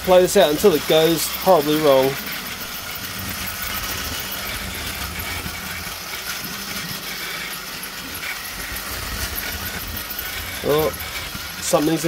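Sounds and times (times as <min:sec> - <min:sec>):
toy train motor and gears: 0:00.0 - 0:12.0.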